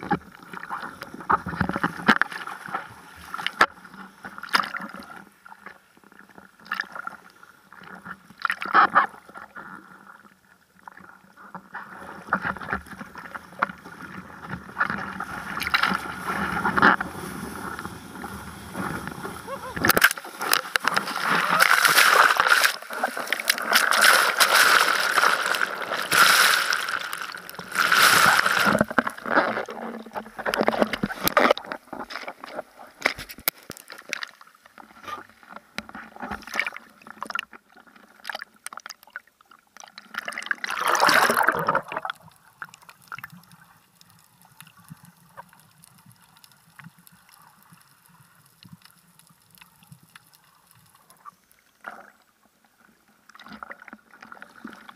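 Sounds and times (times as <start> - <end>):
water lapping: 18.7 - 30.0
seawater splashing against camera: 18.7 - 33.7
loud rush of water: 19.4 - 28.9.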